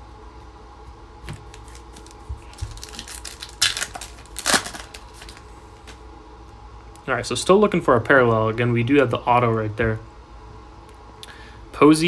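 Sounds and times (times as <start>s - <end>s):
cards rustling and sliding: 1.2s - 6.0s.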